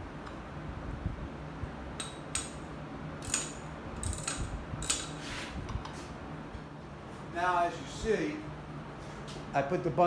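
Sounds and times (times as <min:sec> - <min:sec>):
metal hooks clinking on chrome: 0:03.2 - 0:05.2.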